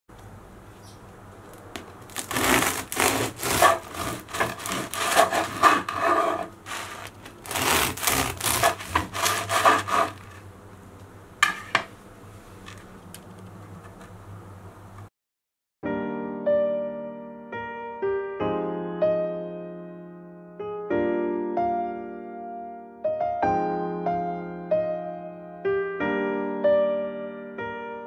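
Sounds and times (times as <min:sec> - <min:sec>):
crust crackling: 0:00.1 - 0:14.1
bread knife sawing crusty bread: 0:02.1 - 0:10.5.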